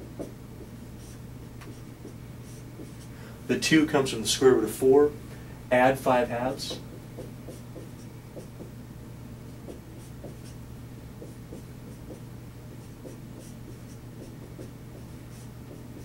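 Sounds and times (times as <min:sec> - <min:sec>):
steady low hum: 0:00.0 - 0:16.0
marker squeaking on whiteboard: 0:12.8 - 0:16.0.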